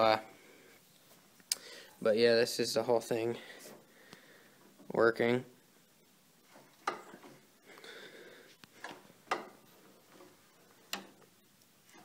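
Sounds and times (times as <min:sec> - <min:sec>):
light metallic clicks and knocks: 0:06.5 - 0:07.4, 0:08.7 - 0:11.3.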